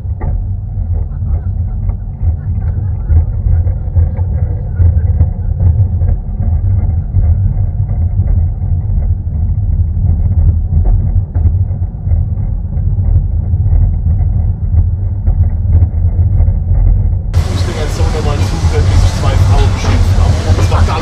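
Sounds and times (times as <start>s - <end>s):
railway carriage rumbling on track: 0.0s - 21.0s.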